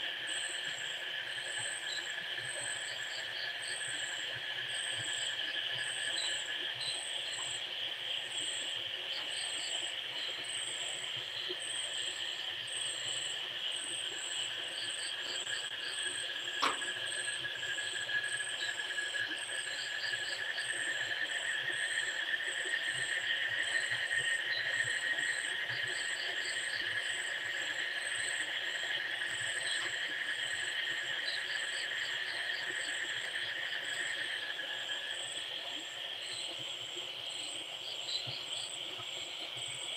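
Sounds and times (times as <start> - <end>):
insects chirring: 0.2 - 39.9
sharp click: 16.6 - 16.9.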